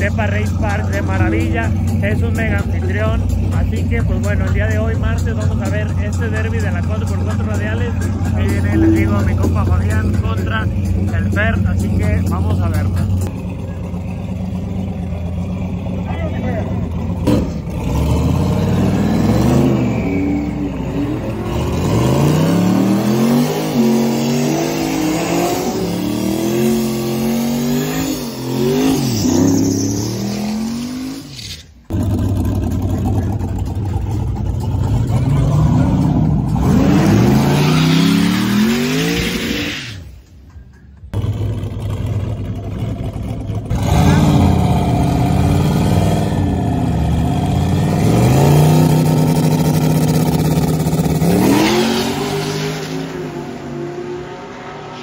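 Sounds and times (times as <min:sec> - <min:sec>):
truck engine revving hard: 0:00.0 - 0:40.1, 0:41.1 - 0:55.0.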